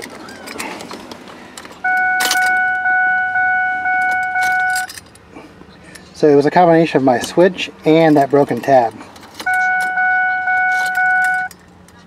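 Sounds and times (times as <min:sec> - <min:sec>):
keys jangling: 0:01.7 - 0:02.6, 0:04.1 - 0:05.2, 0:10.6 - 0:12.0
car warning chime pulsing: 0:01.8 - 0:05.0, 0:09.5 - 0:11.6.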